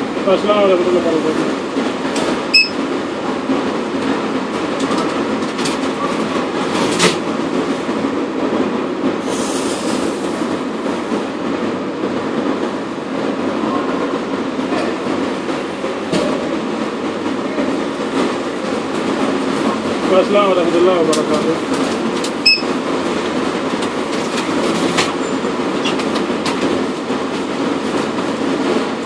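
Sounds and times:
rumbling din of parking garage: 0:00.0 - 0:29.0
short high beep: 0:02.6 - 0:02.8, 0:22.4 - 0:22.7.

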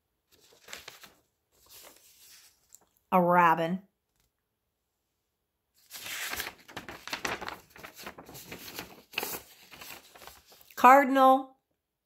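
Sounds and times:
paper rustling: 0:00.3 - 0:03.0, 0:05.8 - 0:10.8.

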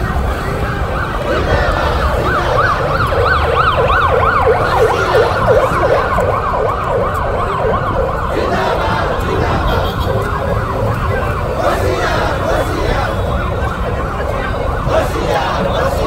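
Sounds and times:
electronic sirens wailing: 0:00.0 - 0:16.0.

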